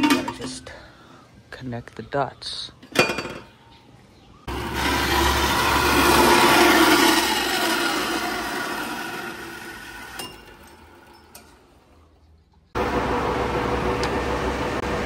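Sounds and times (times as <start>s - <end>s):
bandsaw cutting metal tubing: 4.5s - 11.5s
motor hum: 4.5s - 11.9s, 12.8s - 15.0s.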